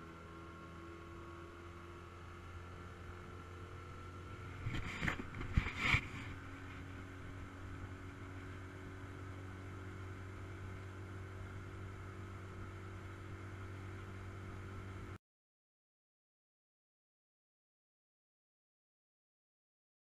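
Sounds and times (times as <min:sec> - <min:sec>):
boat motor humming: 0:00.0 - 0:15.2.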